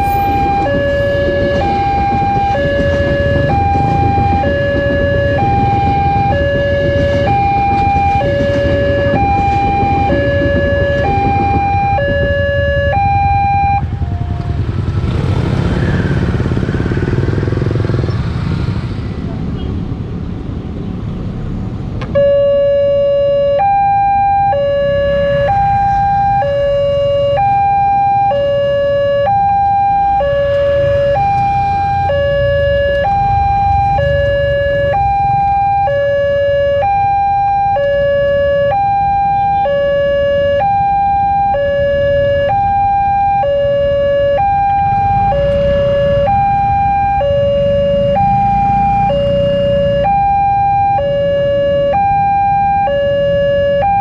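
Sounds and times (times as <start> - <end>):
level crossing two-tone alarm: 0.0 - 14.7, 22.2 - 54.0
motorcycle and car engines: 0.0 - 54.0.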